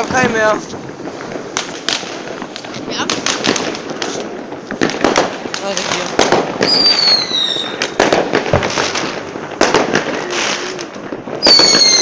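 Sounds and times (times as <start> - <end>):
firecrackers banging: 0.0 - 12.0
whistling firework: 6.2 - 12.0.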